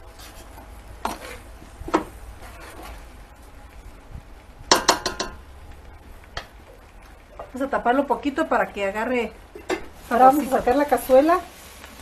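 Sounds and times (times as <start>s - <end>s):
metal spoon scraping a pot: 0.1s - 1.5s, 2.4s - 3.1s.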